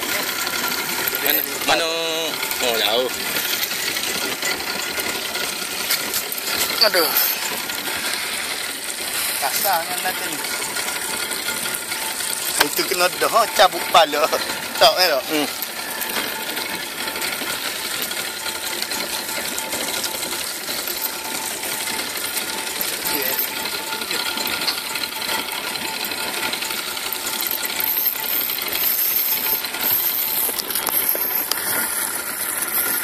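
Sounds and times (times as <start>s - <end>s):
fishing reel clicking: 0.0s - 33.0s.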